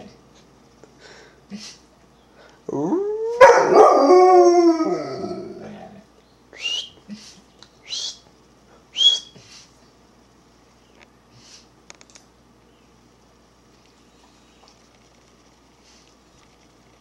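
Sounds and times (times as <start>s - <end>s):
dog howling: 2.7s - 6.0s.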